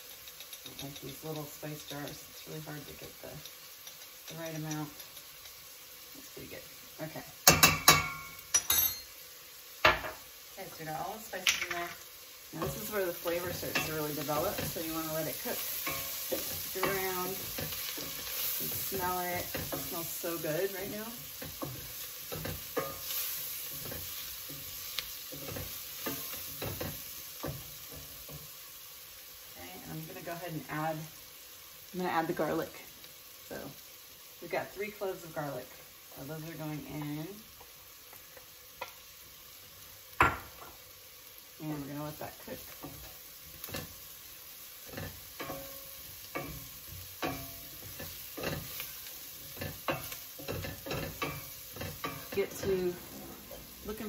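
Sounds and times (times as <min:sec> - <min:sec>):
onions and spices sizzling: 0:00.0 - 0:54.0
spoon knocking against pot: 0:07.4 - 0:09.0.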